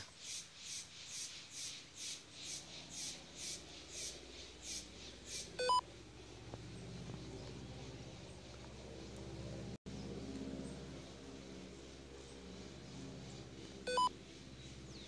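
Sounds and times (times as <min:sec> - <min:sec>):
low steady hum: 0:03.6 - 0:15.0
short electronic beep: 0:13.9 - 0:14.1.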